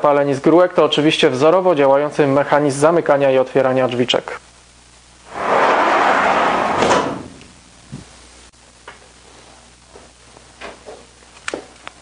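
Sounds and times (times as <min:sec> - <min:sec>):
glass door rushing slide: 0:05.3 - 0:07.5.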